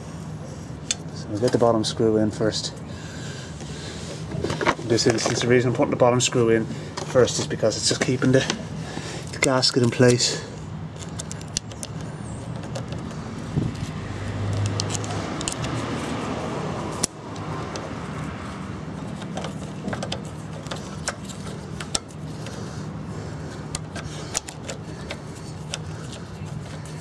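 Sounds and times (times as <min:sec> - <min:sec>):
steady low hum: 0:00.0 - 0:27.0
screwdriver clicking and scraping: 0:11.0 - 0:16.2, 0:16.9 - 0:18.2, 0:19.0 - 0:22.6, 0:23.7 - 0:27.0.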